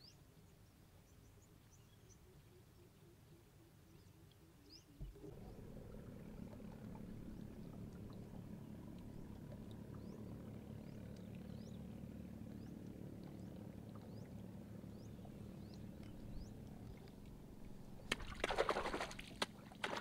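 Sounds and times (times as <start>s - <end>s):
distant engine humming: 5.0s - 20.0s.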